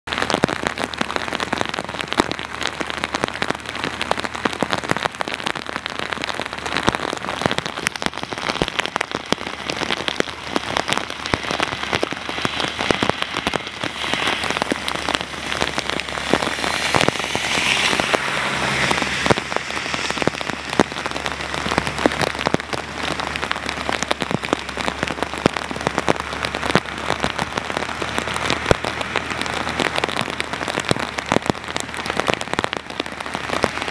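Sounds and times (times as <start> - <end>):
torrential rain pattering: 0.0 - 33.9
vehicle passing on wet road: 0.1 - 33.9.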